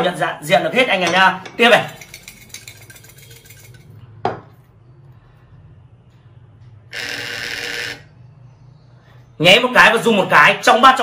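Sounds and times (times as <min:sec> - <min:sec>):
counters rattling under a bowl: 0:01.1 - 0:04.0.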